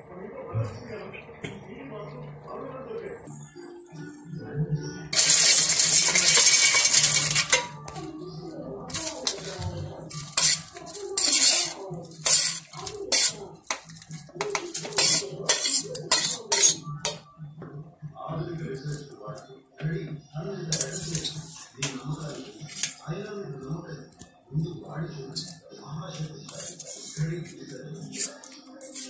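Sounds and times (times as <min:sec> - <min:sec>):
peanuts rattling into steel jar: 0:05.2 - 0:07.7
steel spoon scraping steel bowl: 0:05.2 - 0:07.8, 0:08.9 - 0:17.2, 0:26.5 - 0:27.4, 0:28.0 - 0:29.0.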